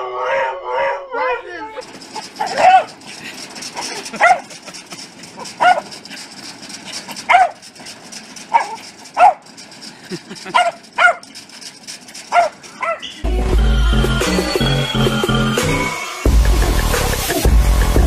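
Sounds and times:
dog barking: 2.4 - 3.0, 4.2 - 4.5, 5.6 - 5.9, 7.3 - 7.6, 8.5 - 9.4, 10.5 - 11.3, 12.3 - 13.1
music: 13.2 - 18.0.

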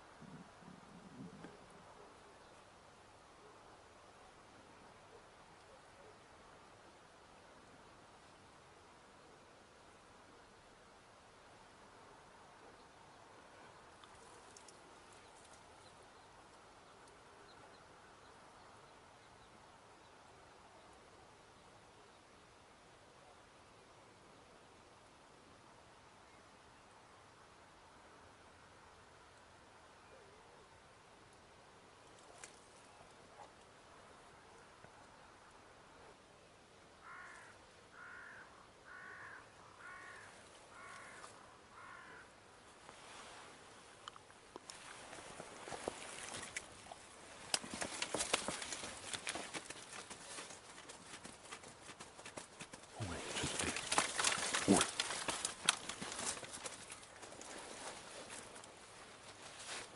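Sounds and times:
faint outdoor hiss: 0.0 - 59.9
faint high ticks: 14.0 - 14.8
crow cawing: 37.0 - 42.3.

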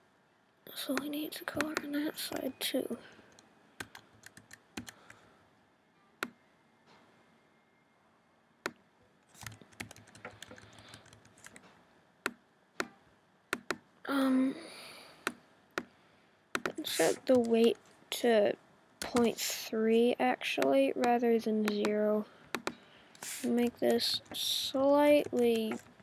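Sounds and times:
computer keyboard and mouse clicks: 0.9 - 1.9, 3.3 - 5.1, 9.4 - 11.7, 12.3 - 13.8, 20.6 - 24.4.

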